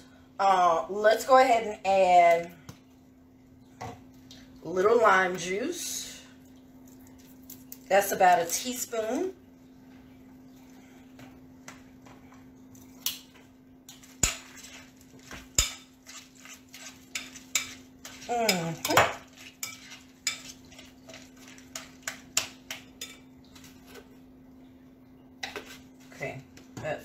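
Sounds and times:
utensil scraping glass bowl: 14.4s - 22.4s.

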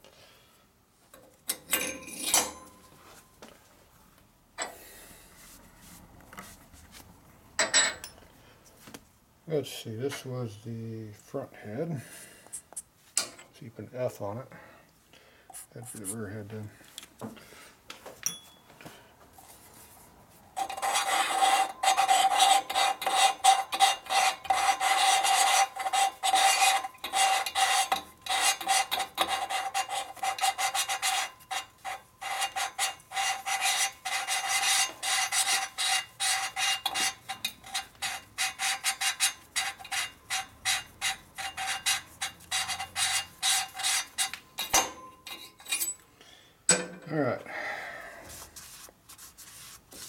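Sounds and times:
metallic ringing tone: 18.2s - 18.7s.

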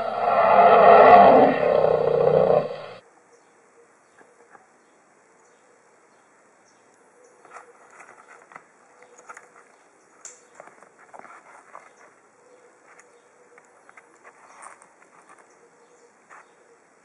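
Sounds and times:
faint steady hiss: 1.6s - 17.0s
clicks and rustles of handling toys: 7.4s - 12.2s, 12.8s - 15.6s.

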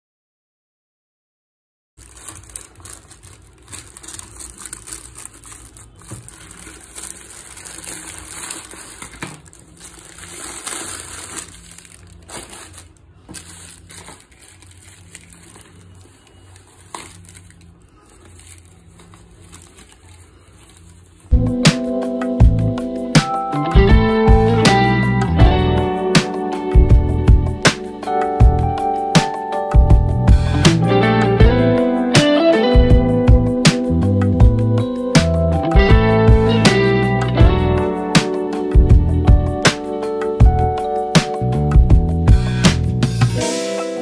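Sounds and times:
plastic tearing: 2.0s - 21.3s
plastic wrap crinkling: 2.0s - 21.3s.

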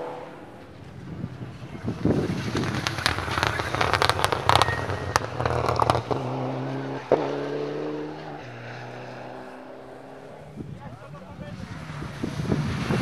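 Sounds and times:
distant rally car engine: 0.0s - 13.0s
rally car passing at speed: 0.0s - 13.0s
exhaust pops and bangs: 0.6s - 7.3s.

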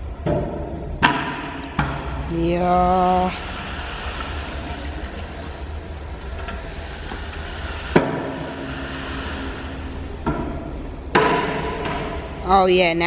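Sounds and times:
scooter wheels rolling on concrete: 2.6s - 10.9s.

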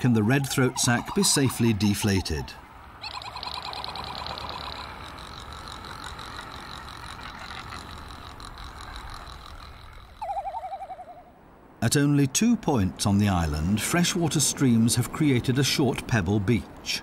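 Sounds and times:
bird calls warbling and trilling: 0.0s - 11.3s
steady background noise: 0.0s - 17.0s.

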